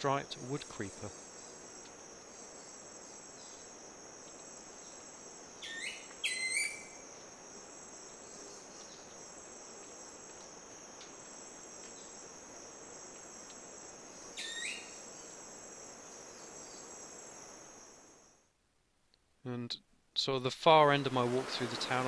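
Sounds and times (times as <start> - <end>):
forest insects droning: 0.0 - 18.6, 20.7 - 22.0
loud bird calls: 5.6 - 7.0, 14.3 - 15.2.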